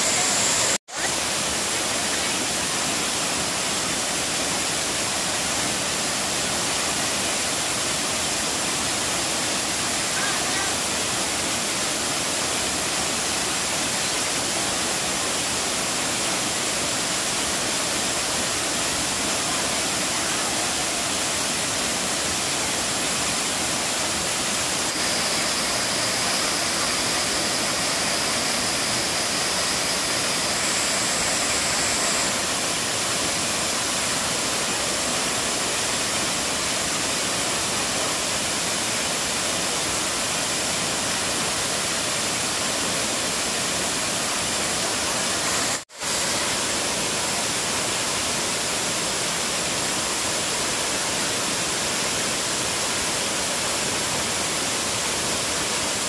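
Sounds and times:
thin high steady tone: 0.0 - 3.0, 18.1 - 35.8
waterfall rushing into a pool: 0.0 - 56.0.

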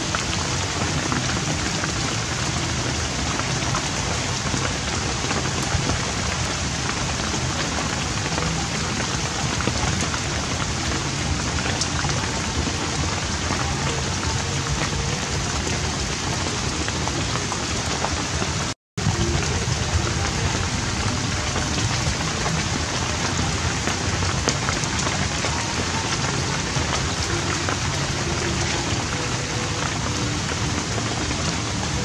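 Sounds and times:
rain falling: 0.0 - 32.0.

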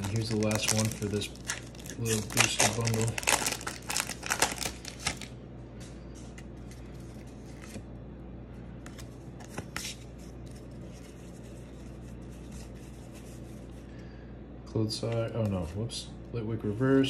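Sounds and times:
foil wrapper crinkling: 0.0 - 5.4
trading cards being handled: 0.0 - 7.9, 8.8 - 13.8
steady low hum: 0.0 - 17.0.

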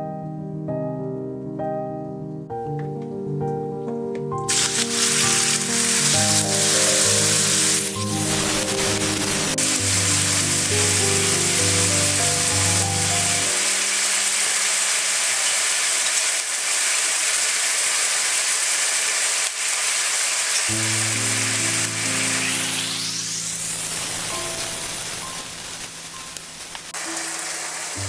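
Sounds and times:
background music: 0.7 - 14.0
chicken sizzling in hot oil: 4.5 - 28.0.

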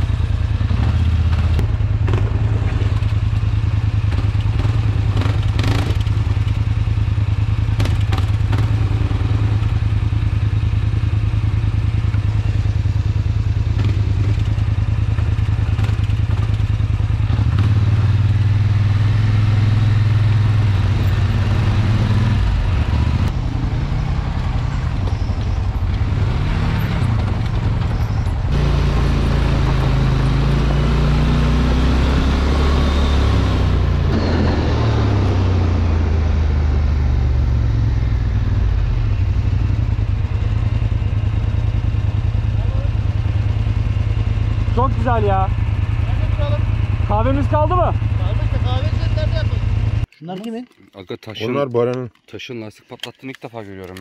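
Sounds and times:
atv engine running: 0.0 - 50.1
knocks and clatter over rocks: 50.1 - 54.0.

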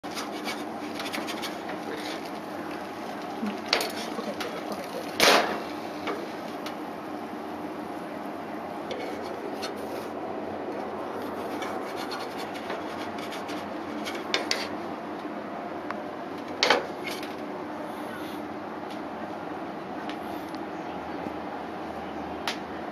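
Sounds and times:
spatula scraping a skillet: 0.1 - 2.4, 8.9 - 10.2, 11.2 - 14.8.

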